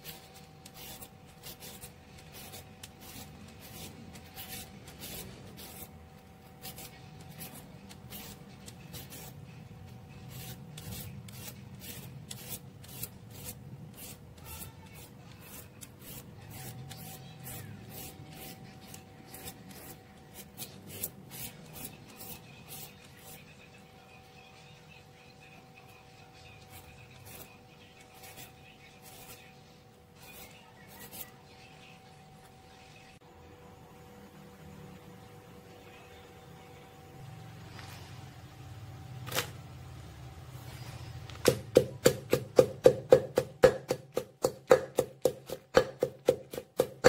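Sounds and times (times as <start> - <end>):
peeler scraping cucumber: 0.0 - 23.6, 25.9 - 29.6, 30.2 - 31.4.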